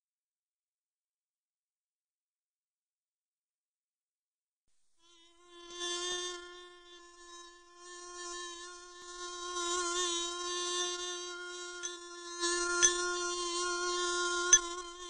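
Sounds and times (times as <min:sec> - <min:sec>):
bee buzzing: 0:05.1 - 0:15.0.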